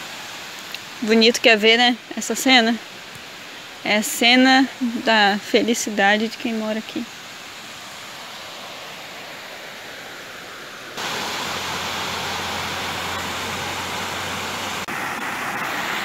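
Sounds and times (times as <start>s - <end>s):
water pouring over spillway: 11.0s - 16.0s.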